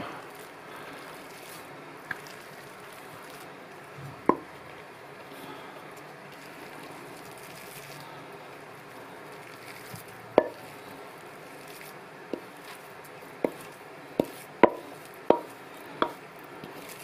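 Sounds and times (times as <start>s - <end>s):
scraping mixture from a bowl: 9.4s - 17.0s.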